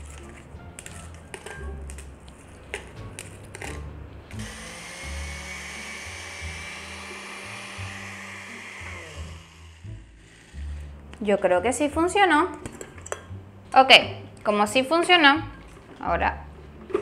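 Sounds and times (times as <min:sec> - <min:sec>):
background music with bass: 0:00.0 - 0:14.5
blender grinding cookies: 0:04.3 - 0:10.7.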